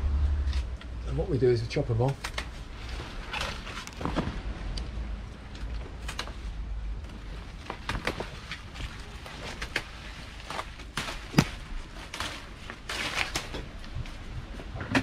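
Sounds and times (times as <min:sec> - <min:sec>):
leaves rustling: 0:00.2 - 0:14.5
vine shoots snipping and snapping: 0:09.5 - 0:14.0.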